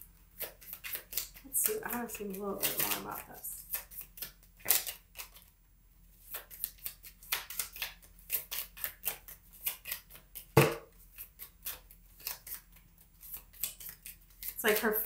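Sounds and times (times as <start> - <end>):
cards being shuffled: 0.3 - 5.5, 6.2 - 15.0
thump: 10.6 - 10.9.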